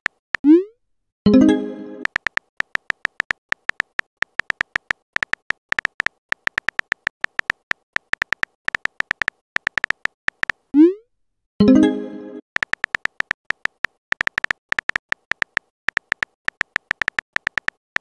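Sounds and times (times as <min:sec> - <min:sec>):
phone keyboard tap clicks: 0:02.0 - 0:10.6, 0:12.6 - 0:18.0.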